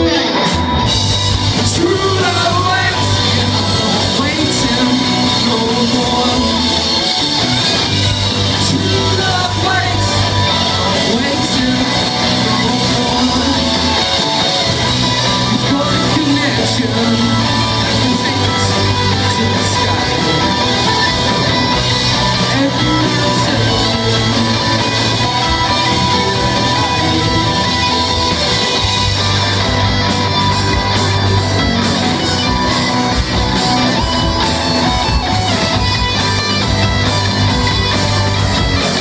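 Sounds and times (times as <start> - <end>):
bass guitar: 0.0 - 39.0
drums: 0.0 - 39.0
electric guitars: 0.0 - 39.0
person singing: 1.5 - 7.4, 8.4 - 28.8.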